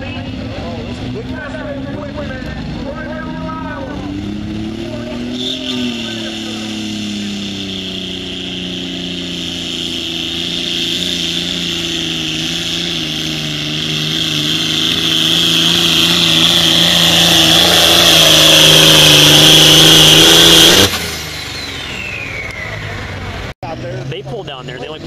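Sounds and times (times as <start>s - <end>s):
tractor diesel engine at full throttle: 0.0s - 25.0s
high steady whine: 5.0s - 22.7s.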